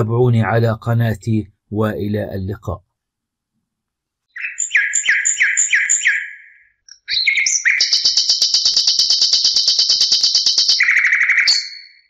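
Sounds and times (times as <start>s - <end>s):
bird-like chirping music: 4.3s - 12.0s.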